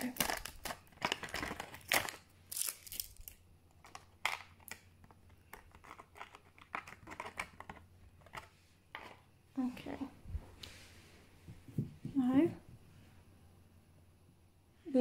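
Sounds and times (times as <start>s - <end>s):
plastic bag crinkling: 0.0s - 4.8s.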